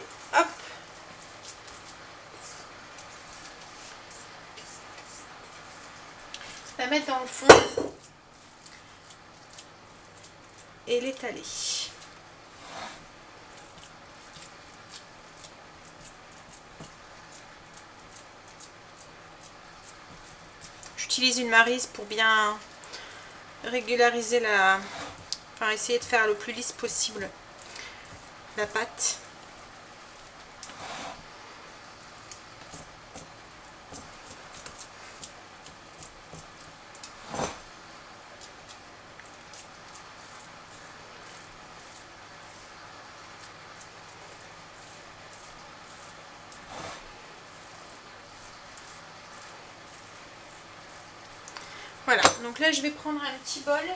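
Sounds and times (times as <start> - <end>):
spatula patting soft filling: 0.0 - 52.6
spatula scraping and squishing filling: 8.3 - 10.8, 11.9 - 21.0.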